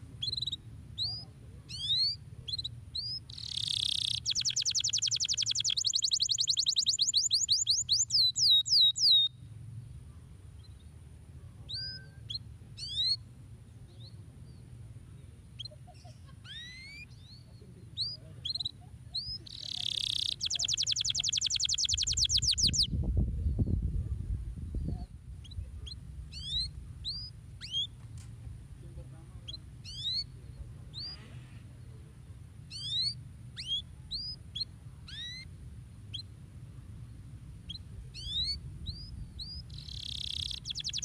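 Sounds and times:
canary singing trills: 0.0s - 9.4s, 11.6s - 14.7s, 15.4s - 23.0s, 24.8s - 28.0s, 29.4s - 31.3s, 32.6s - 36.4s, 37.0s - 41.0s
canary chirps: 0.1s - 9.4s, 11.6s - 13.3s, 15.5s - 23.0s, 24.9s - 28.0s, 29.4s - 31.2s, 32.6s - 36.4s, 37.0s - 41.0s.

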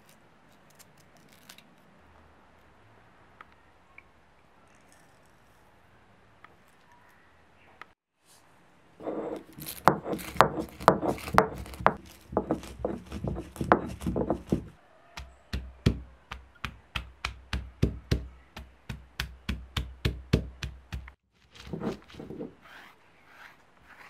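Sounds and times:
stone pounding on stone: 9.6s - 21.1s.

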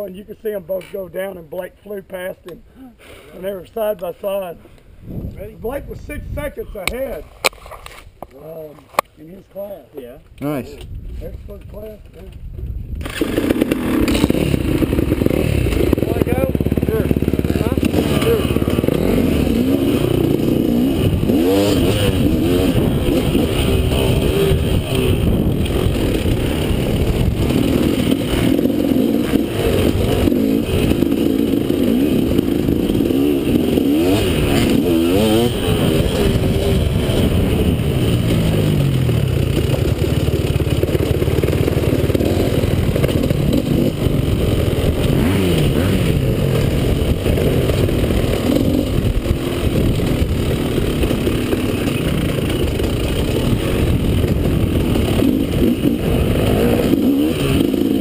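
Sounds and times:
dirt bike engine revving: 13.0s - 58.0s.

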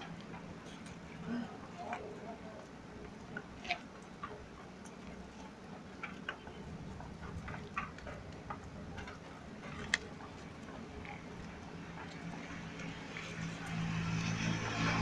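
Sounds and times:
rain water dripping: 2.9s - 14.8s.

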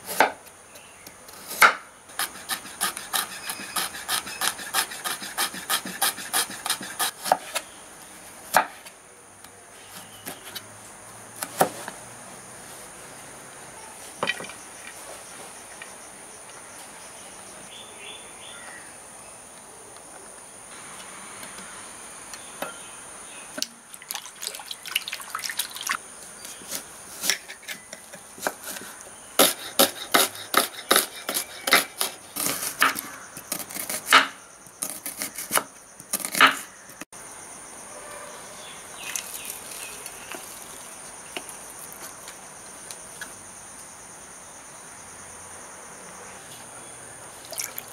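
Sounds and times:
knife slicing onion on wooden board: 1.3s - 7.7s, 26.7s - 36.8s
crickets chirping: 1.8s - 47.9s.

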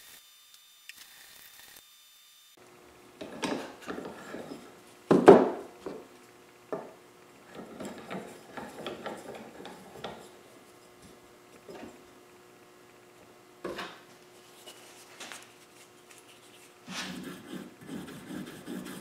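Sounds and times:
vise knocks and rattles: 5.1s - 6.0s
wooden clunk on workbench: 5.1s - 6.0s.

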